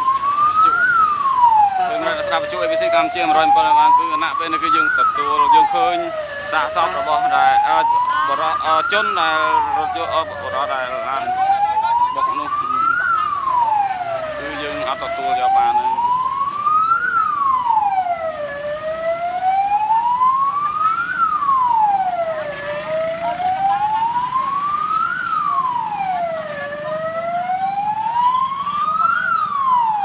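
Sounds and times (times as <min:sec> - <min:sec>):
ambulance siren wailing: 0:00.0 - 0:30.0.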